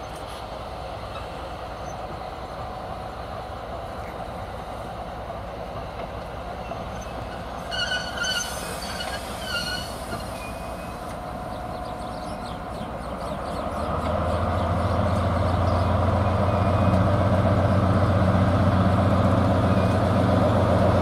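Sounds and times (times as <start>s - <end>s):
diesel locomotive: 0.0s - 21.0s
train rolling: 0.0s - 21.0s
wheels squealing: 6.6s - 11.2s.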